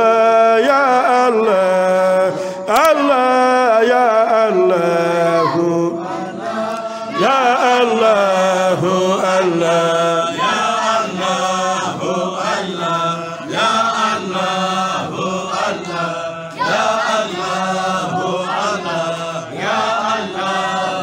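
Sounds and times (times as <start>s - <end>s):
voices chanting: 0.6s - 21.0s.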